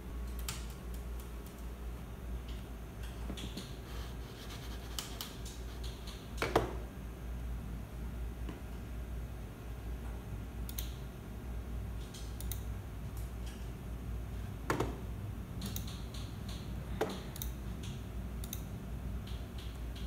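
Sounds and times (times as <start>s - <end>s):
low steady hum: 0.0s - 20.0s
computer mouse clicks: 0.2s - 1.7s, 2.5s - 3.8s, 4.9s - 6.7s, 10.7s - 11.0s, 12.0s - 13.7s, 15.6s - 20.0s.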